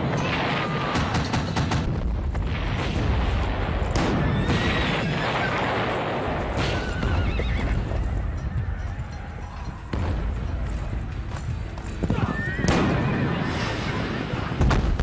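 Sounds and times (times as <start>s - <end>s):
explosion blasts: 0.0s - 8.0s, 12.6s - 15.0s
galloping hooves: 3.7s - 13.4s
horses whinnying: 4.1s - 6.0s, 6.6s - 9.1s.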